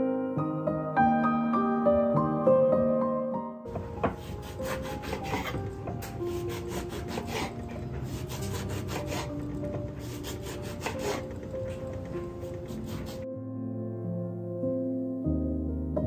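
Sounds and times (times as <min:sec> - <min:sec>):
soft music: 0:00.0 - 0:16.0
knife cutting oranges on wooden board: 0:03.7 - 0:13.3.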